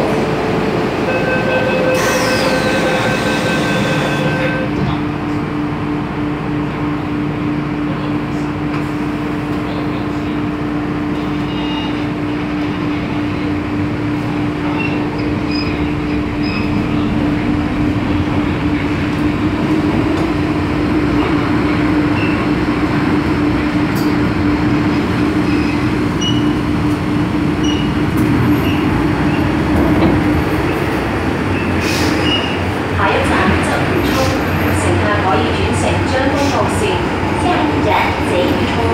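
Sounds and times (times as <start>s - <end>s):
wheels rumbling on rails: 10.6s - 38.9s
train motor hum: 12.5s - 22.0s.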